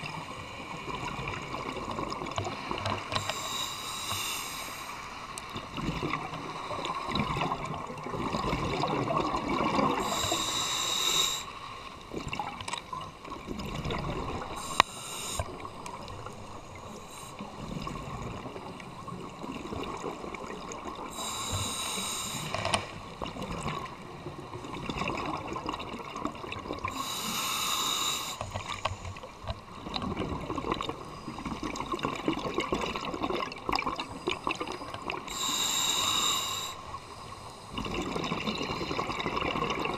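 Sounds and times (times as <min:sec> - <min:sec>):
regulator hissing inhale: 0:03.0 - 0:05.3, 0:09.9 - 0:12.0, 0:14.4 - 0:17.8, 0:21.1 - 0:23.0, 0:26.9 - 0:29.4, 0:34.2 - 0:37.8.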